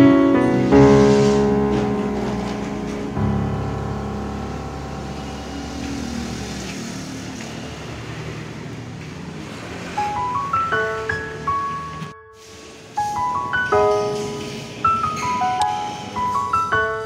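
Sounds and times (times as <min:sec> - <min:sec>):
held music chords: 0:00.0 - 0:07.5
low rumble: 0:01.7 - 0:06.7.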